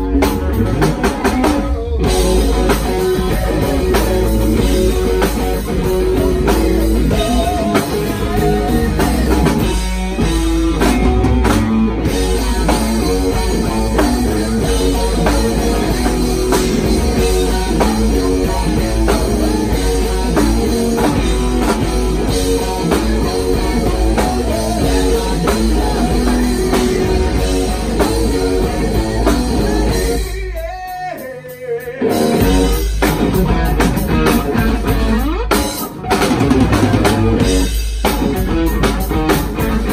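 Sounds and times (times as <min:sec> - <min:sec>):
bass guitar: 0:00.0 - 0:39.9
drum kit: 0:00.0 - 0:39.9
electric guitars: 0:00.0 - 0:39.9.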